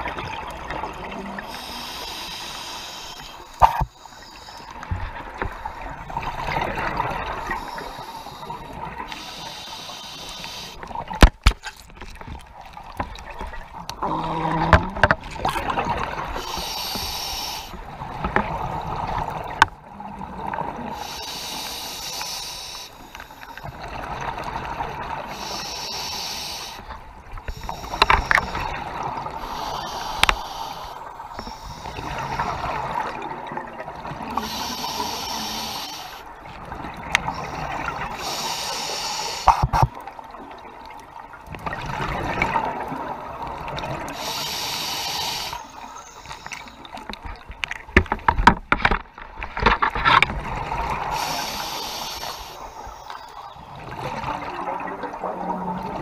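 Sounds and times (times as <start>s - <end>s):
regulator breathing underwater: 1.4s - 4.9s, 7.2s - 11.0s, 16.2s - 17.9s, 20.8s - 23.9s, 25.2s - 33.1s, 34.2s - 36.3s, 37.1s - 39.8s, 44.0s - 47.0s, 51.0s - 53.3s.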